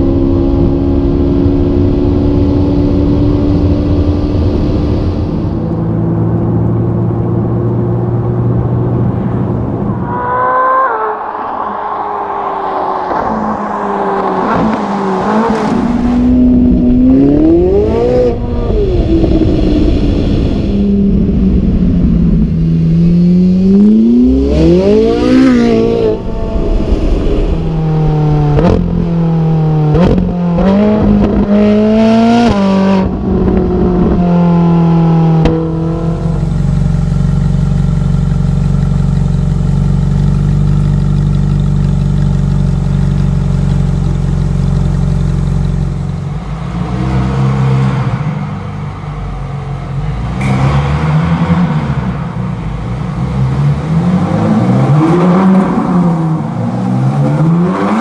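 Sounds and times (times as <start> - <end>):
car engine accelerating hard: 0.0 - 58.0
car engine idling: 34.8 - 53.9.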